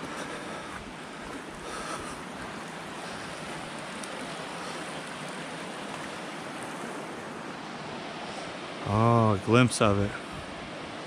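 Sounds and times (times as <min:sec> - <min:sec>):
flowing water rushing: 0:00.0 - 0:11.0.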